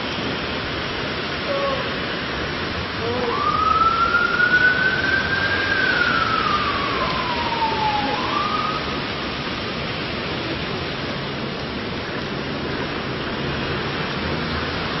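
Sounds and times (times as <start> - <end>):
heavy rain pouring: 0.0 - 15.0
wailing siren tone: 3.0 - 9.3.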